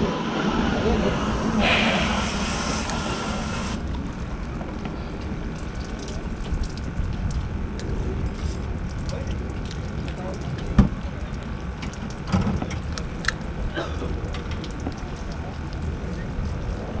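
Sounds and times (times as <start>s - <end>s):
hiss: 0.0s - 3.8s
sea wash: 0.0s - 3.9s
wind rumbling on microphone: 0.0s - 13.6s.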